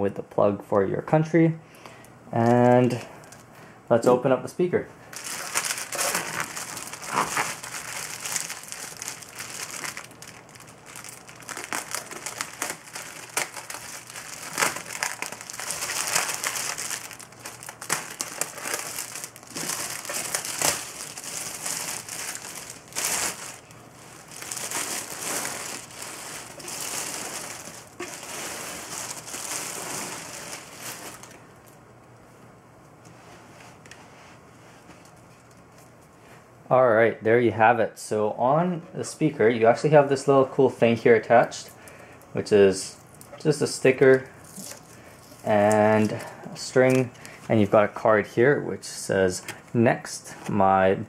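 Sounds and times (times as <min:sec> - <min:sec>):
plastic bag crinkling: 0:05.1 - 0:31.7, 0:43.9 - 0:48.0.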